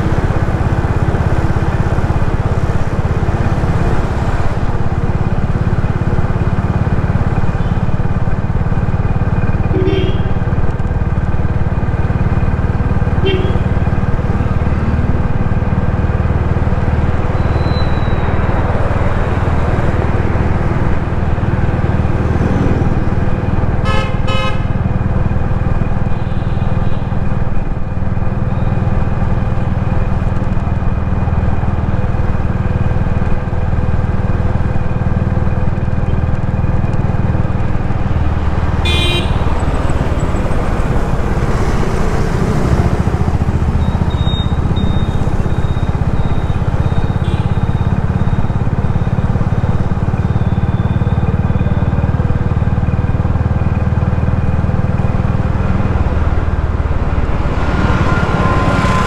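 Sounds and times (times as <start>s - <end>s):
car engine and tyres: 0.0s - 59.0s
road traffic rumble: 0.0s - 59.0s
car horns honking: 9.6s - 10.6s, 13.0s - 14.2s, 23.8s - 24.9s, 38.7s - 40.2s, 43.6s - 49.1s, 56.6s - 59.0s.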